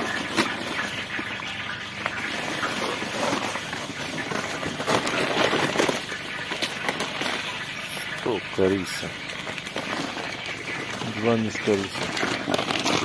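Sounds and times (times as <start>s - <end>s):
grains ticking against metal: 0.0s - 13.0s.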